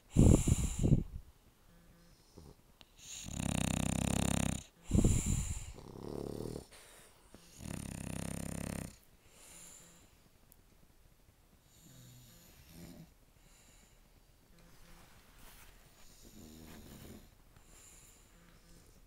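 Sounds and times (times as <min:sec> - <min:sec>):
faint dog breathing: 0:00.0 - 0:10.4, 0:11.6 - 0:19.0
dog snoring: 0:01.7 - 0:06.8, 0:07.4 - 0:09.0, 0:11.6 - 0:13.2, 0:16.0 - 0:19.0.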